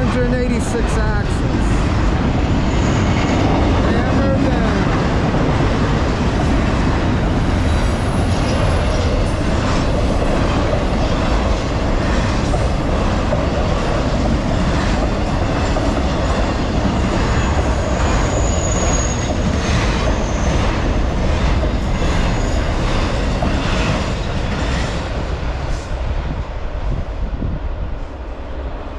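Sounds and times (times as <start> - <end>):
freight train wheels rumbling on rails: 0.0 - 28.9
high wheel squeal: 2.5 - 3.7, 17.4 - 20.9.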